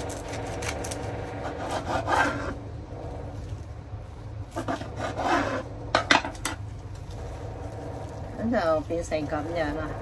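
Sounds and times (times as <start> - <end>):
plastic cling film crinkling: 6.3 - 10.0.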